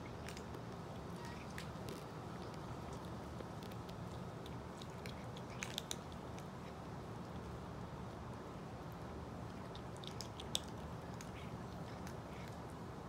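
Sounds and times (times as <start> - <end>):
kitten crunching kibble: 0.0 - 13.0
steady background noise: 0.0 - 13.0.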